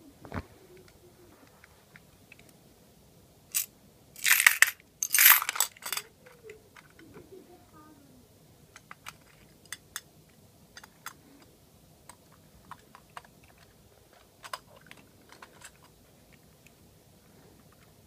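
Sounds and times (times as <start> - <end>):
toy truck parts clicking: 12.1 - 16.0.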